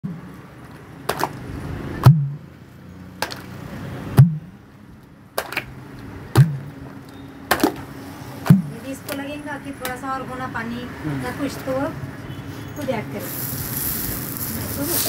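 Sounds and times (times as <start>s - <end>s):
steady low hum: 4.1s - 7.1s, 7.8s - 9.6s.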